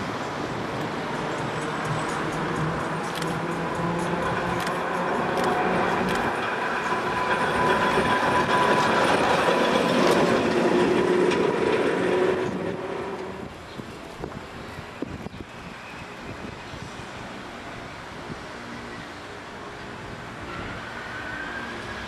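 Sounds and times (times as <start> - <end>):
tram running gear whine: 0.0 - 22.0
tram wheels clicking over track: 0.7 - 13.5.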